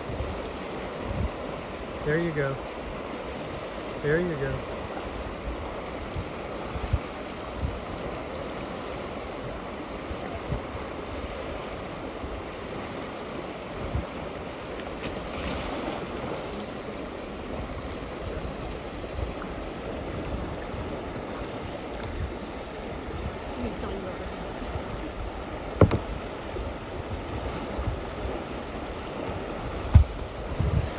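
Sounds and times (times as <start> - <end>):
river water rushing: 0.0 - 30.9
water splash: 14.7 - 16.9
low thumps: 25.8 - 26.2.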